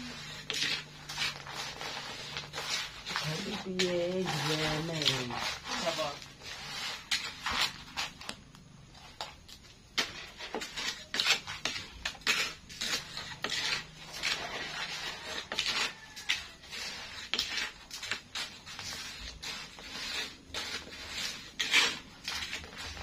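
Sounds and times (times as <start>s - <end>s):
crackers frying: 0.0s - 23.0s
metal spatula scraping a wok: 0.0s - 23.0s.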